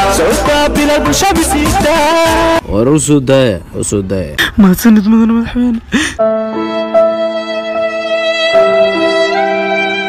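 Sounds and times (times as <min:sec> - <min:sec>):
slow sad string music: 0:06.2 - 0:10.0.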